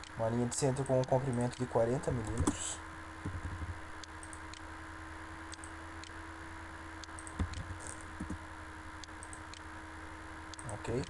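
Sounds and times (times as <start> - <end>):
steady electrical hum: 0.0 - 11.0
computer mouse clicks: 3.3 - 4.6, 5.5 - 6.2, 7.0 - 8.4, 9.0 - 9.6.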